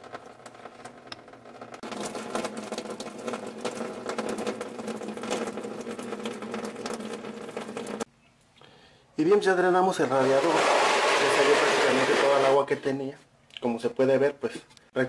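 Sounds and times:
water splashing into plastic pan: 1.8s - 8.1s.

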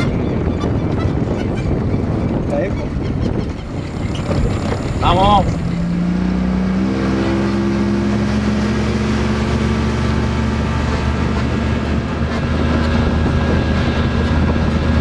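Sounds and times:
outboard motor running: 0.0s - 15.0s
water rushing and spray: 4.0s - 15.0s.

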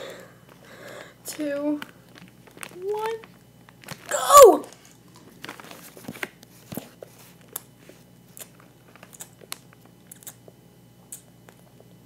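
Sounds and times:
person chewing candy: 7.3s - 11.9s.

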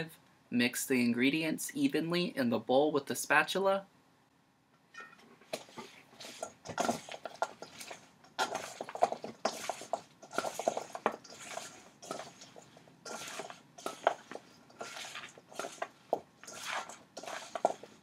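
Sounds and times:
spatula scraping metal bowl: 5.0s - 18.0s.

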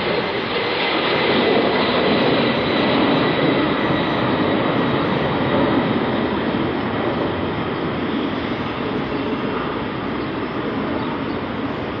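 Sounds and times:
jet engine roar with whine: 0.0s - 12.0s.

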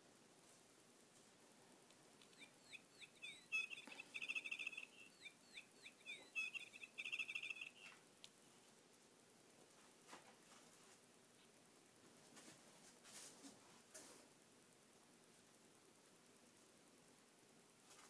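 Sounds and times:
faint birdlike chirping and trill: 2.1s - 8.0s.

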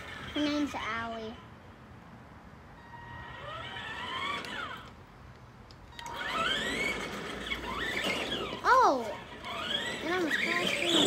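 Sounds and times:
toy car electric motor whining: 2.8s - 5.0s, 5.9s - 11.0s.

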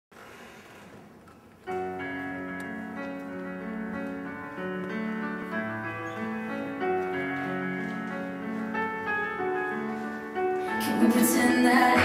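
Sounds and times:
pop song with piano chords: 8.8s - 12.0s.

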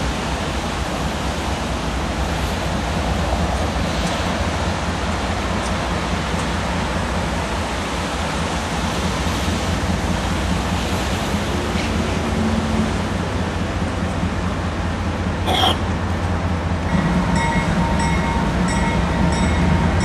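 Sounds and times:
distant diesel locomotive rumble: 0.0s - 20.0s.

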